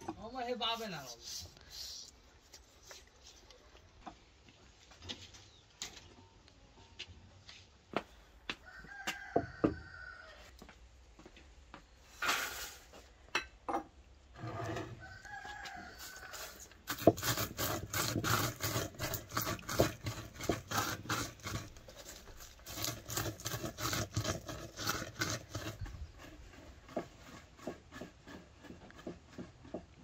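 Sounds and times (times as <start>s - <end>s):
rooster crowing: 8.5s - 10.6s, 14.9s - 16.8s
stone pounding walnuts in wooden bowl: 16.8s - 30.0s.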